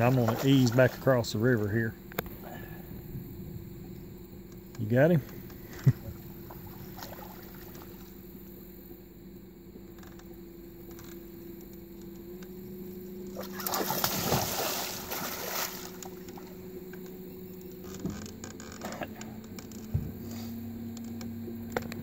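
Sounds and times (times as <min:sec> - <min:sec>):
fish thrashing and splashing: 0:00.0 - 0:01.2, 0:05.6 - 0:08.2, 0:13.3 - 0:16.8
boat engine idling: 0:00.0 - 0:22.0.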